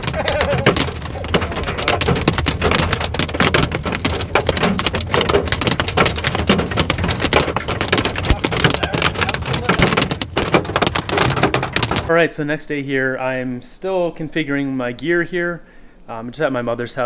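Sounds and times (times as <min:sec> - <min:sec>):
hail clattering on van roof: 0:00.0 - 0:12.1.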